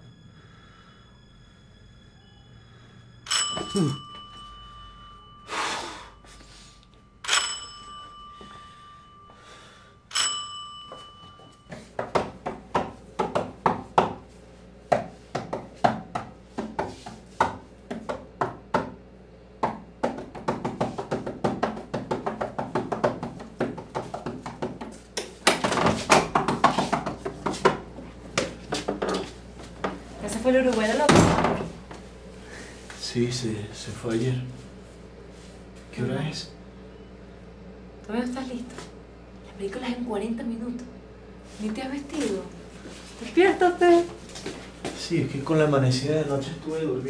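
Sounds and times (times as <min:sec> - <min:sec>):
doorbell ringing: 0:03.2 - 0:11.7.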